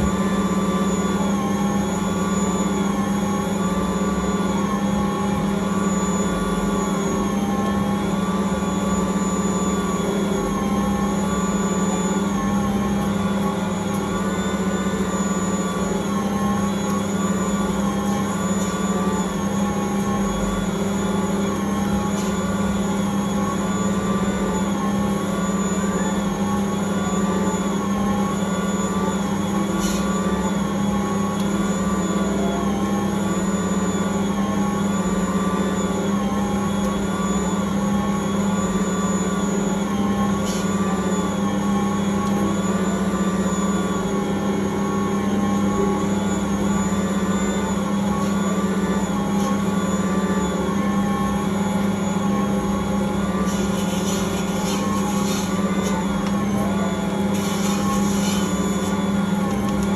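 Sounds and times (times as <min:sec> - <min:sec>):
stand mixer motor hum: 0:00.0 - 0:59.9.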